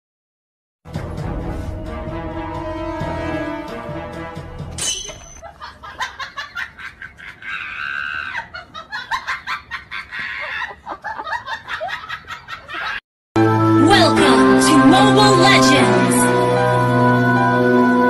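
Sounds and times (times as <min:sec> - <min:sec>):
person laughing high-pitched: 0:05.4 - 0:13.0.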